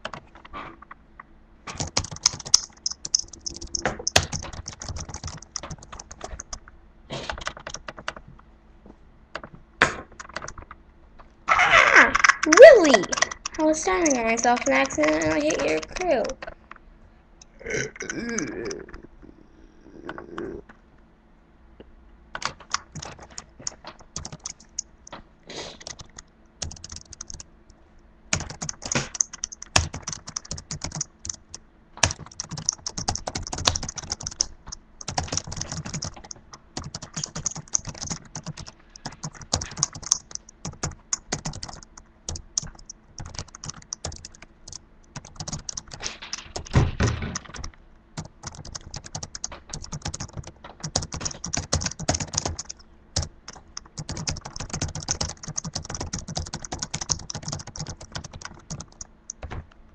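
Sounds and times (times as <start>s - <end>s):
keyboard key clicks: 1.7s - 6.6s, 25.8s - 27.4s, 28.4s - 59.8s.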